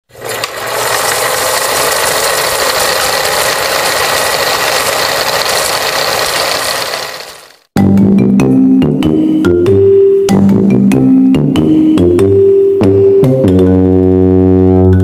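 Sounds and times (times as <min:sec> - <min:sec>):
film projector clatter: 0:00.0 - 0:07.7.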